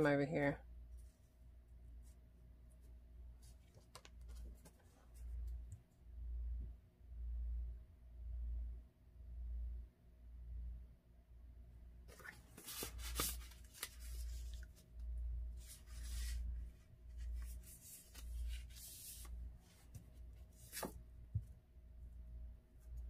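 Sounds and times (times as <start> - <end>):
paper sliding and rustling: 12.1 - 14.9, 15.5 - 21.0.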